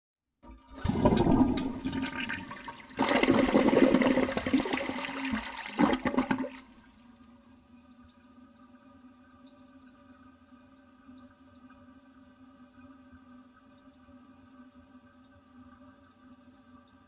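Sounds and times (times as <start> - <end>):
toilet flushing: 0.4 - 10.6
faint water trickle: 6.6 - 17.0.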